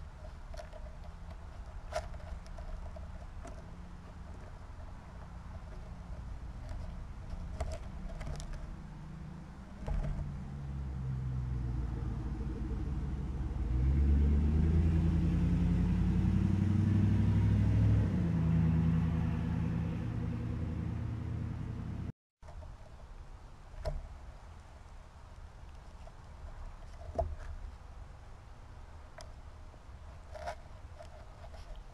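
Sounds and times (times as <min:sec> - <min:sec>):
motor vehicle engine running: 0:00.0 - 0:22.1.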